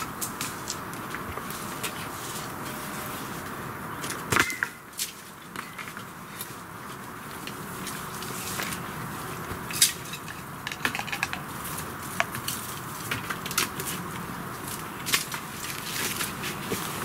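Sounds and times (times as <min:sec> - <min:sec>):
sticks and twigs clicking: 0:00.0 - 0:02.8, 0:09.7 - 0:17.0.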